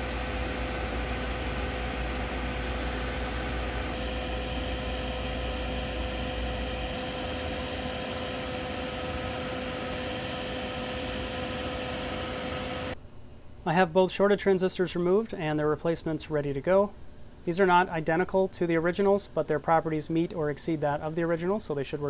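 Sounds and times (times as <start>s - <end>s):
deep rumble: 0.0s - 10.0s
whirring machine hum: 0.0s - 22.0s.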